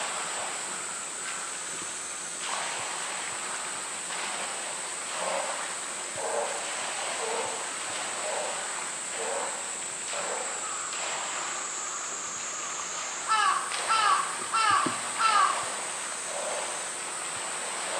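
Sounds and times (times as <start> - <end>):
steady high hiss: 0.0 - 17.9
animal calling in short calls: 13.3 - 15.6.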